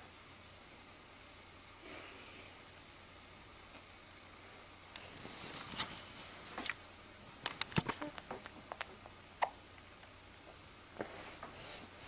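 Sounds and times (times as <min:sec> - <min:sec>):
baby sucking clicks and smacks: 0:07.5 - 0:10.1.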